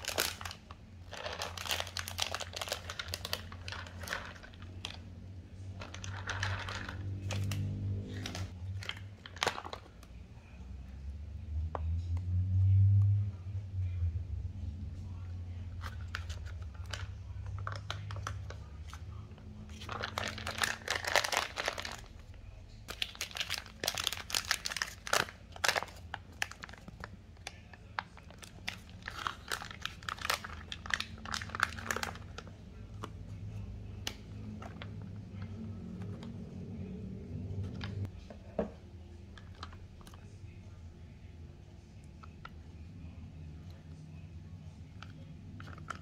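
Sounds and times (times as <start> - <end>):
foil pouches crinkling: 0.0 - 5.0, 5.8 - 9.9, 19.6 - 22.2, 22.9 - 32.5.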